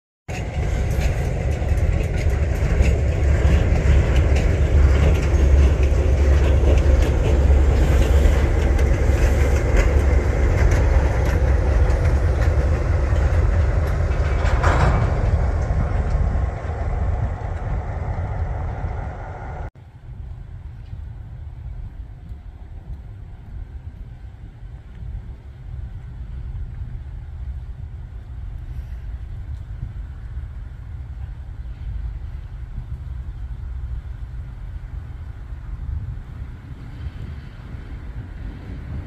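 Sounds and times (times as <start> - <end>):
wheels clicking over rail joints: 0.3 - 19.7
diesel locomotive engine rumble: 0.3 - 39.0.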